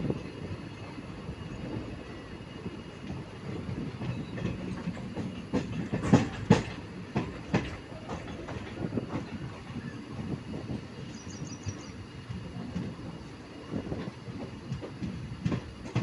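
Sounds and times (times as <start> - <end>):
train low rumble: 0.0 - 16.0
wheels clacking over rail joints: 0.0 - 16.0.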